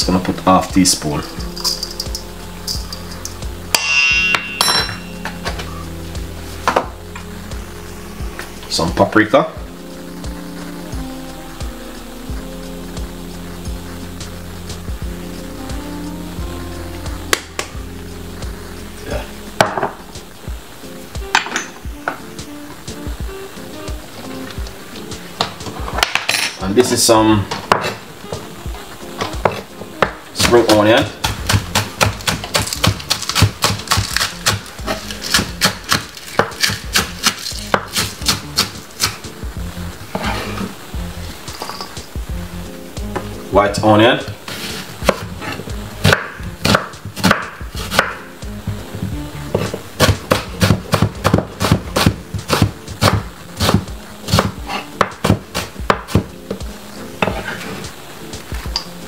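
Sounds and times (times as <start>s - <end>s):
knife chopping on board: 29.4s - 39.2s, 44.5s - 48.2s, 49.5s - 56.6s.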